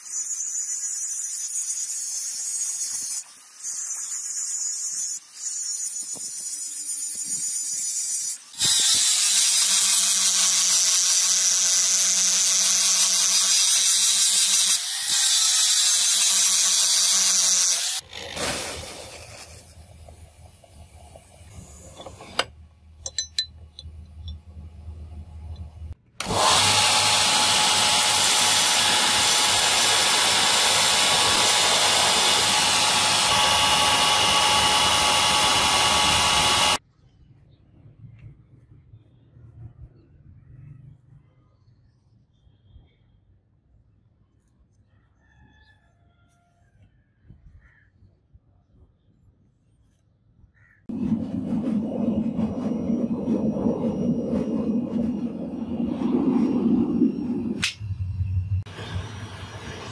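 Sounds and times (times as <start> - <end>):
power grinder grinding steel: 0.0 - 20.0, 26.2 - 36.8
sanding wheel grinding blade: 0.0 - 22.4, 26.2 - 36.8
low motor hum: 19.7 - 28.0, 50.9 - 59.9.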